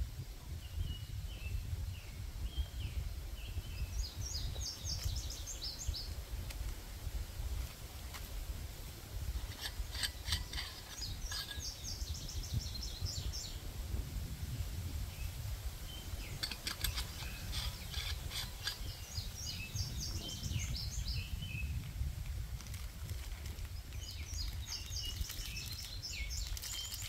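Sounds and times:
songbird chirping: 0.4 - 6.8, 9.4 - 13.7, 15.1 - 21.9, 23.5 - 27.0.

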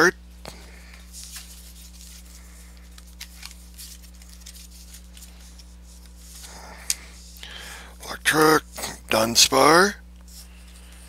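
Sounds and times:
cards clicking and rustling: 0.4 - 7.5.

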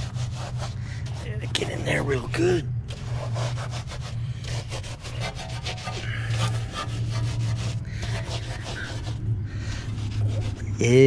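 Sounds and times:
brush scrubbing wheel: 0.0 - 11.0
steady low hum: 0.0 - 11.0.

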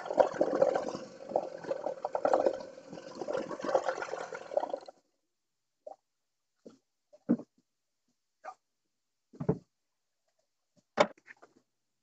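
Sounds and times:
water splashing and running: 0.0 - 4.9.

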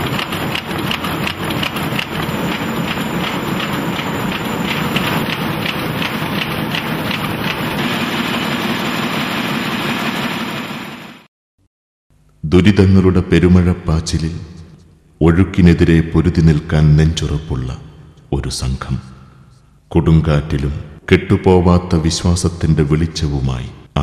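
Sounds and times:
printing press clattering: 0.0 - 10.5.

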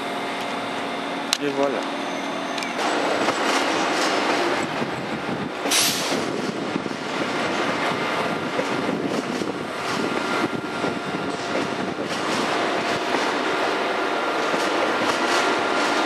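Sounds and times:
train wheels rumbling on rail: 0.0 - 16.0
sharp hiss of air: 5.7 - 6.3.

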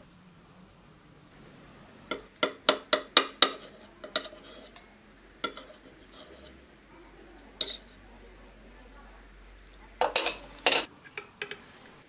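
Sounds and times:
knife and fork clinking on plate: 7.6 - 7.9.

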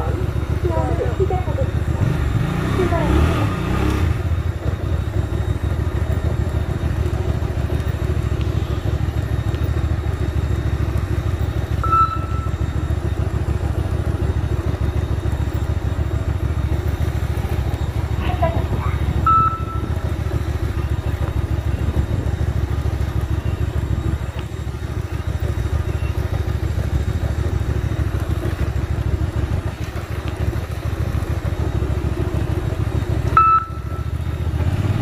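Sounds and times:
motorcycle engine running: 0.0 - 35.0
high electronic beep: 11.6 - 13.2, 17.9 - 26.4, 33.3 - 34.4.

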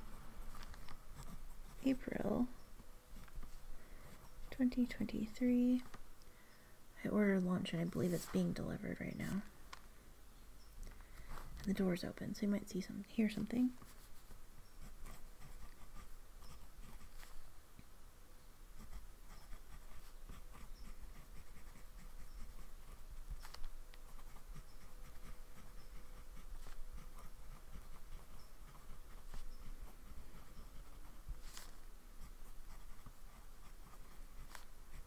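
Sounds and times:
pen scratching on paper: 0.5 - 2.4, 13.2 - 17.4, 18.8 - 35.0.

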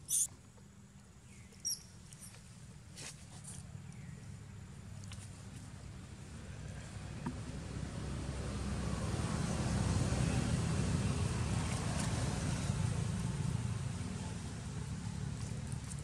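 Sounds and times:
passing vehicle rumble: 6.6 - 16.0.

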